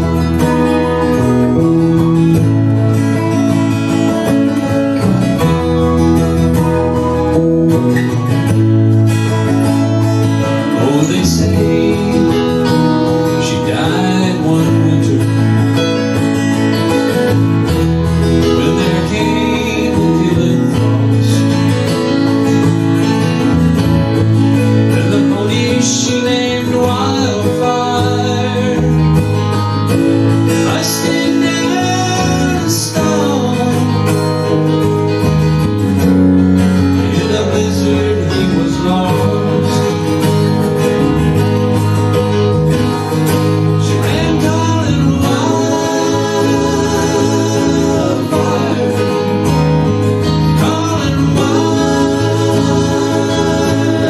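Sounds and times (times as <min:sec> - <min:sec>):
electric bass: 0:00.0 - 0:54.0
keyboard: 0:00.0 - 0:54.0
strummed acoustic guitars: 0:00.0 - 0:54.0
person singing: 0:10.4 - 0:16.1, 0:18.2 - 0:21.6, 0:24.9 - 0:29.8, 0:30.6 - 0:34.6, 0:37.0 - 0:40.5, 0:43.8 - 0:54.0.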